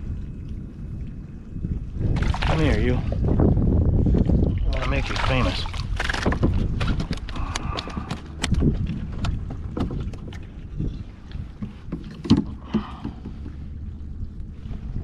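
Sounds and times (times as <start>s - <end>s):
wind rumble on microphone: 0.0s - 15.0s
clicks and knocks of fish handling: 5.1s - 10.5s, 11.3s - 13.7s.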